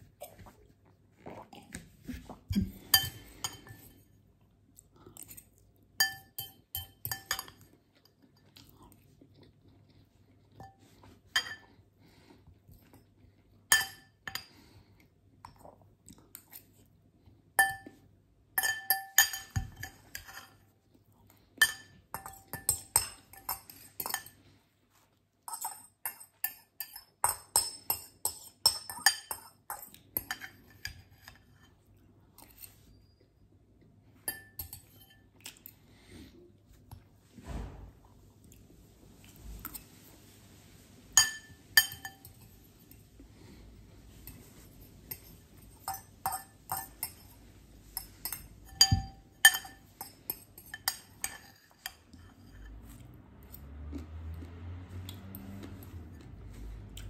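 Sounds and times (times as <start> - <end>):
fork clinking on glass bowl: 6.0 - 7.6, 18.6 - 20.6, 34.3 - 35.2, 41.2 - 42.5, 45.1 - 47.3, 48.0 - 52.7
chewing: 7.8 - 11.2, 52.8 - 57.0.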